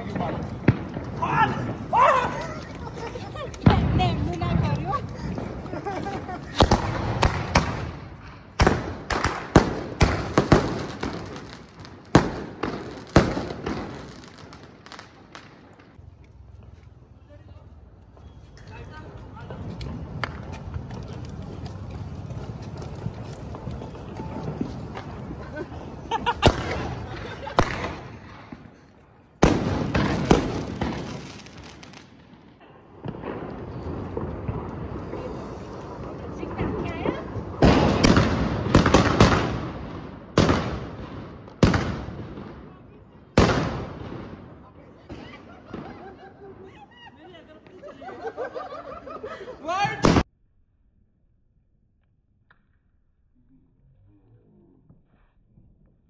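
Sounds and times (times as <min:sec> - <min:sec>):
fireworks bangs: 0:00.0 - 0:16.8, 0:17.8 - 0:48.9, 0:49.7 - 0:50.3
fireworks hissing: 0:33.0 - 0:39.6.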